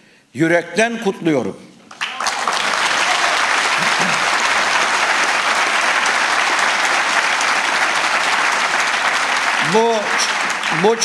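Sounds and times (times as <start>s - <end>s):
audience applauding: 1.9s - 11.0s.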